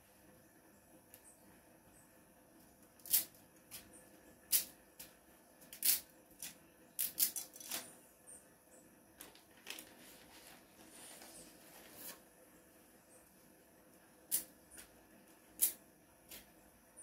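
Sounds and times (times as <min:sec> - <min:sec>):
crackly clicks of pasta packet: 0:09.2 - 0:10.0.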